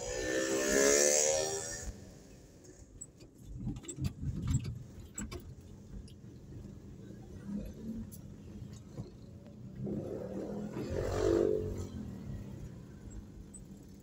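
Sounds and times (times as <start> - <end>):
vehicle engine hum with hiss: 0.0 - 14.0
sharp clicks and rattles: 2.7 - 6.5.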